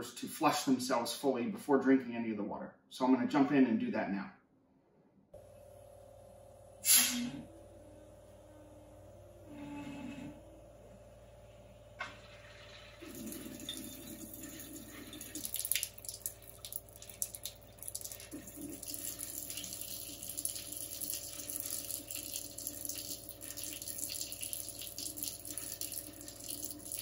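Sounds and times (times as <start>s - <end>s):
faucet water splashing in sink: 13.0s - 27.0s.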